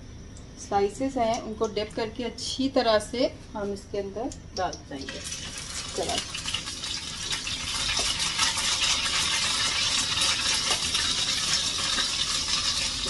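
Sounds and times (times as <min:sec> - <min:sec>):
bread frying in hot oil: 0:04.6 - 0:13.0.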